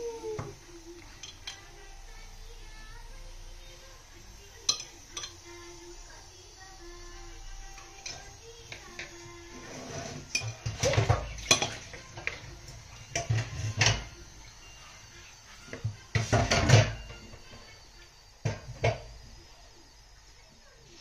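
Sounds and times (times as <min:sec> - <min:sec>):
metal utensils clanking on pan: 0:01.1 - 0:01.7, 0:04.6 - 0:05.5, 0:07.8 - 0:12.5, 0:13.1 - 0:14.1.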